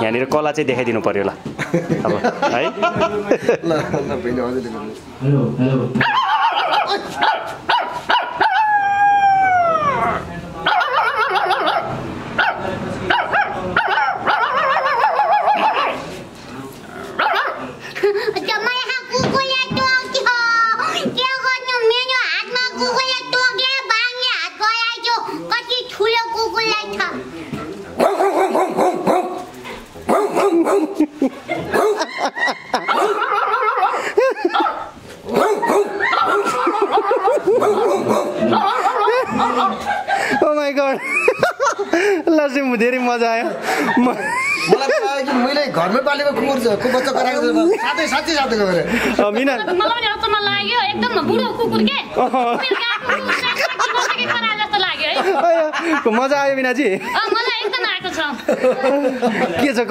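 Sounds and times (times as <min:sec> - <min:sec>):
people imitating dogs yelping: 0:06.0 - 0:16.2, 0:17.0 - 0:17.7, 0:30.1 - 0:40.2.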